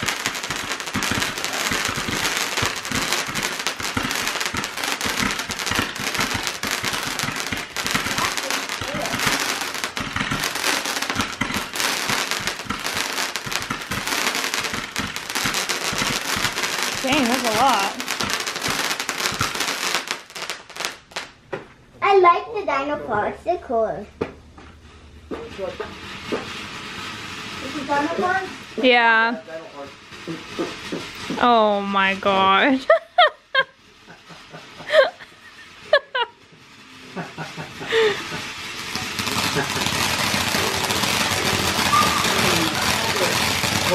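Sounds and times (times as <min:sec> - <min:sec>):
firework crackling and popping: 0:00.0 - 0:21.5, 0:24.2 - 0:43.9
short high-pitched cries: 0:41.8 - 0:42.5.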